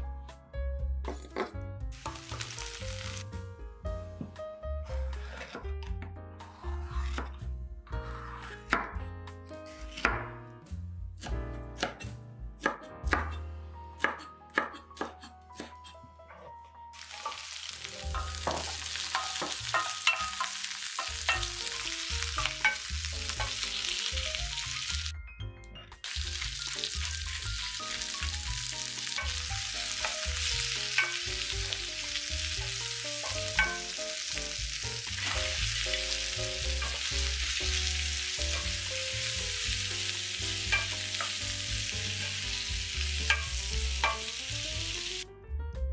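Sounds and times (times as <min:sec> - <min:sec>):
vegetables sizzling in oil: 0:01.9 - 0:03.3, 0:17.0 - 0:25.1, 0:26.0 - 0:45.2
knife slicing on wooden board: 0:05.1 - 0:05.7, 0:06.4 - 0:07.4, 0:08.0 - 0:08.8.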